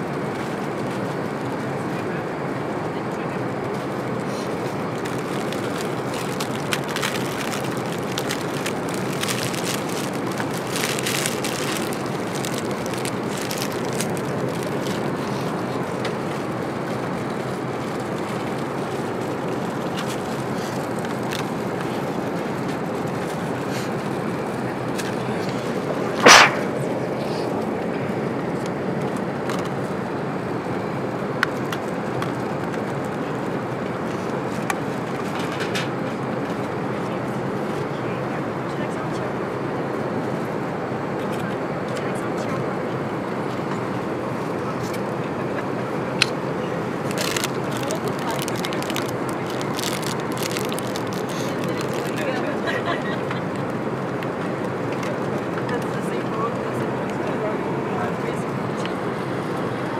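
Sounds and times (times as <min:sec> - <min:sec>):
airplane cabin rushing noise: 0:00.0 - 0:59.9
sharp knock: 0:26.2 - 0:26.8.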